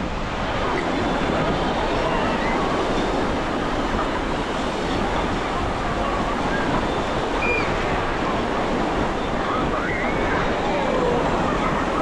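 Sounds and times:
ocean waves breaking on beach: 0:00.0 - 0:12.0.

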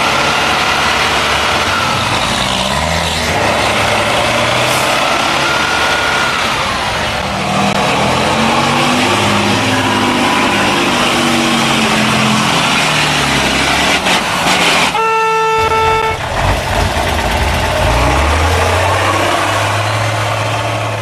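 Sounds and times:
heavy truck engine: 0:00.0 - 0:21.0
truck horn: 0:09.1 - 0:12.5, 0:14.6 - 0:16.4.

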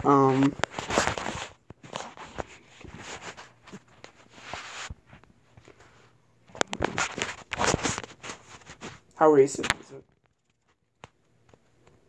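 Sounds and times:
camera handling rustling: 0:06.5 - 0:11.6.

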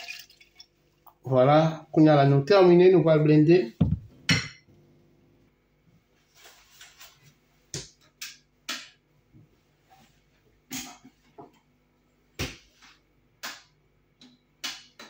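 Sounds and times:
faint room hum: 0:00.0 - 0:15.0
soft rustle: 0:06.2 - 0:07.4.

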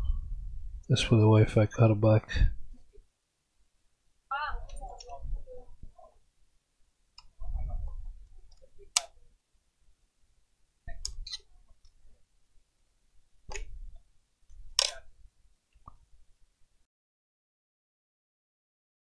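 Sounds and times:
small plastic and metal clicks: 0:14.5 - 0:15.0.

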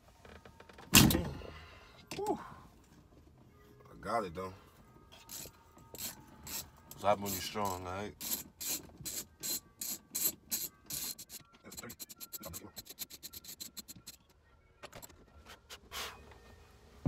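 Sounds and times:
socket ratchet clicking: 0:08.2 - 0:14.2.

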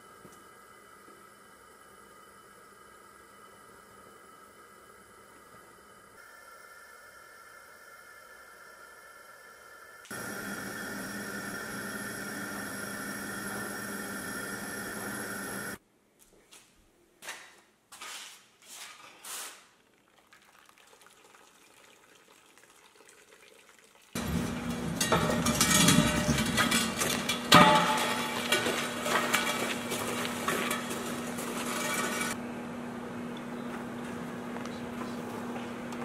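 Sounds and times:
gas burner hissing: 0:00.0 - 0:15.8, 0:24.2 - 0:32.4
water splashing and dripping: 0:19.8 - 0:24.2.

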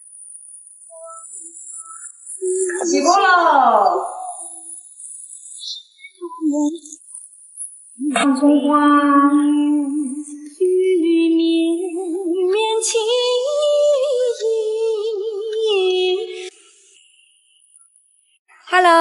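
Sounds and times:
woman singing slow melody: 0:08.0 - 0:16.5.

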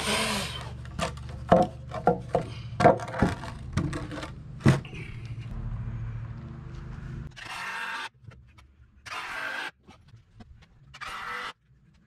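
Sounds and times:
steady low hum: 0:00.6 - 0:07.4.

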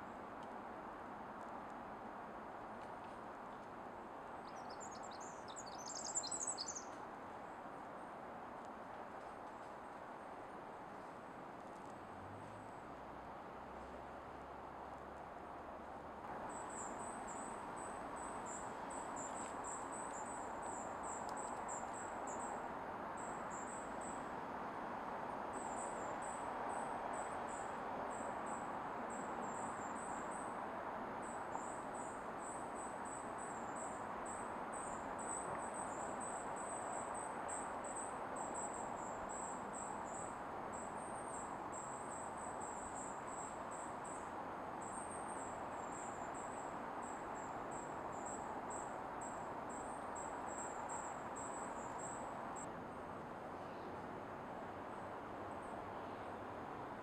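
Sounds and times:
cricket chirping: 0:04.4 - 0:07.0, 0:16.5 - 0:22.6, 0:23.2 - 0:24.2, 0:25.5 - 0:30.5, 0:31.2 - 0:52.7.

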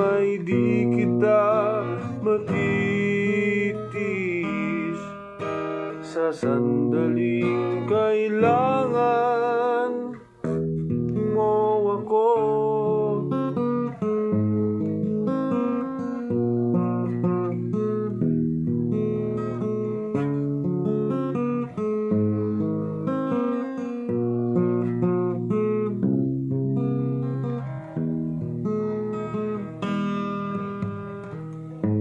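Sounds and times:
acoustic guitar strumming: 0:00.0 - 0:32.0.

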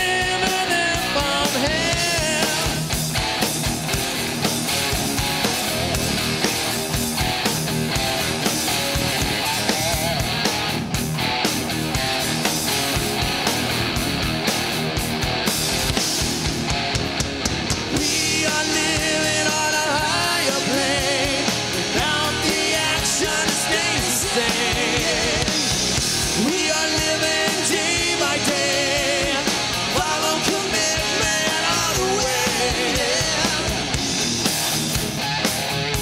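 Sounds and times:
man singing: 0:00.0 - 0:02.9, 0:17.9 - 0:25.7, 0:26.3 - 0:33.9
live rock band playing: 0:00.0 - 0:36.0
pounding drum kit: 0:00.0 - 0:36.0.

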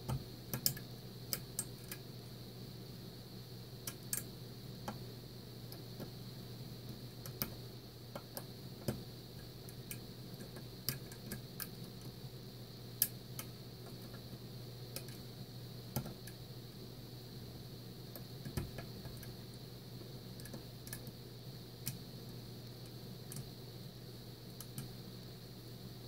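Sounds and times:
faint steady hum: 0:00.0 - 0:26.0
lock pick clicking against pins: 0:00.5 - 0:02.0.

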